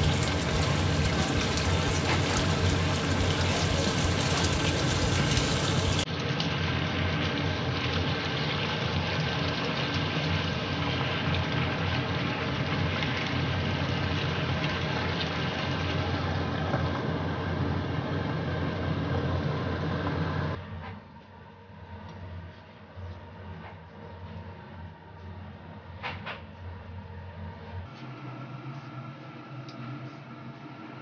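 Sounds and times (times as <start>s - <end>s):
stew bubbling in a pan: 0.0s - 19.3s
steady low hum: 15.8s - 31.0s.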